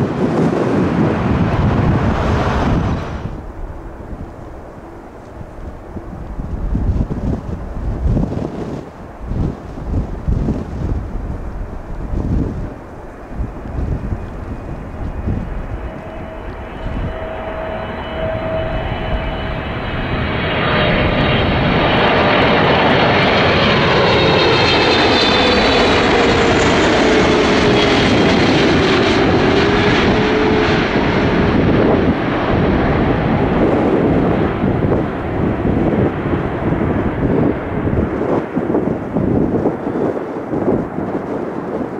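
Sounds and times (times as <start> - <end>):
jet engines whining: 0.0 - 41.9.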